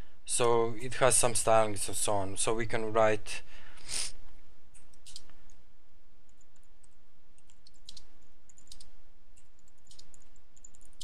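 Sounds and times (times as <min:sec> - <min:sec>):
low steady hum: 0:00.0 - 0:11.0
keyboard key clicks: 0:09.7 - 0:11.0.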